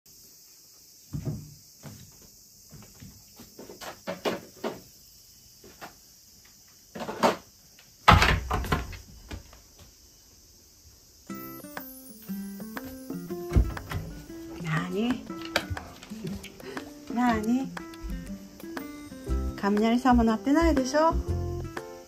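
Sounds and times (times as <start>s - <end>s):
heavy thud on door: 13.5s - 14.2s.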